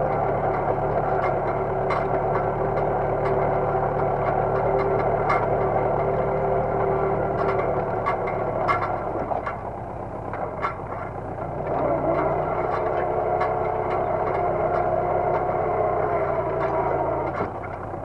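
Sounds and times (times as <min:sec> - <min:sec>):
harrow discs clattering: 0:00.0 - 0:18.0
tractor diesel engine under load: 0:00.0 - 0:18.0.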